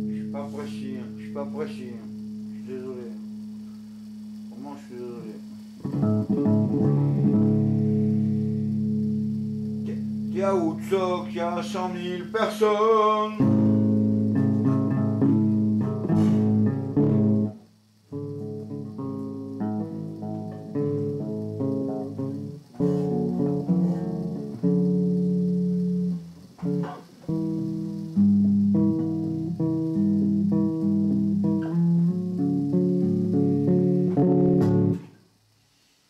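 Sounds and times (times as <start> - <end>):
guitar plucked melody: 0.0 - 35.2.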